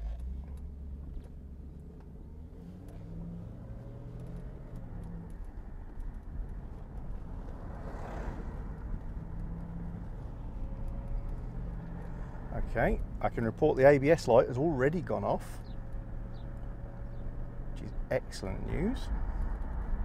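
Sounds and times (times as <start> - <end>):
car engine running: 0.0 - 20.0.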